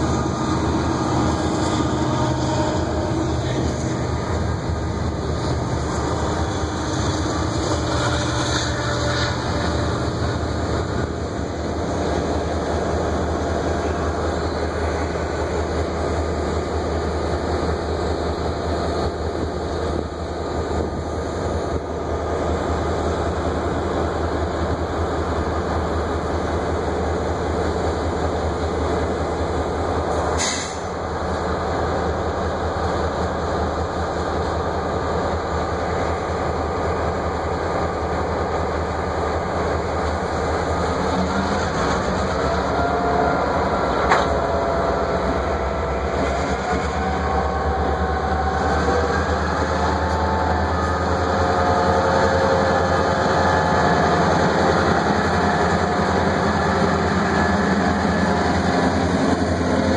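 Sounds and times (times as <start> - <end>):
diesel locomotive engine drone: 0.0 - 59.9
wheel and rail noise: 0.0 - 59.9.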